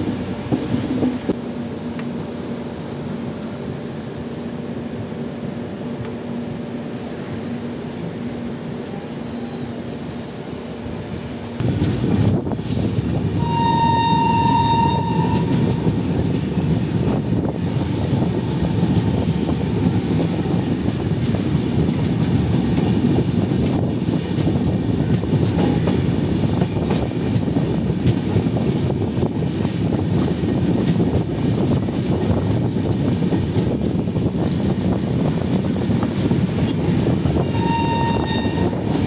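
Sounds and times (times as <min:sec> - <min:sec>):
train wheels rumbling on track: 0:00.0 - 0:39.0
train horn blast: 0:13.4 - 0:16.2, 0:37.4 - 0:39.0.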